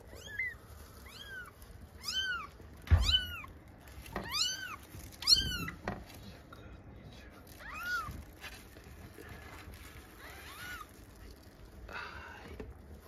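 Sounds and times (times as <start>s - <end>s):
newborn kitten mewing: 0.0s - 3.5s, 4.1s - 5.8s, 7.5s - 8.2s, 10.2s - 11.0s
thump: 2.8s - 3.3s.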